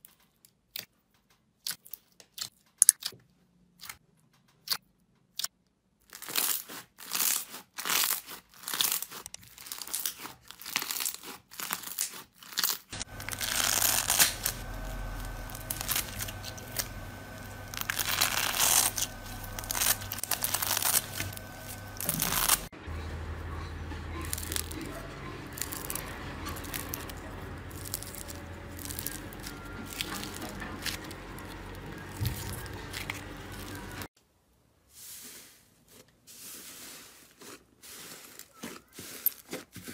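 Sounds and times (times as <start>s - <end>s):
slime popping and crackling: 4.6s - 22.7s, 24.2s - 34.1s
slime squishing: 4.6s - 22.7s, 24.0s - 34.1s
steady low hum: 13.0s - 34.1s.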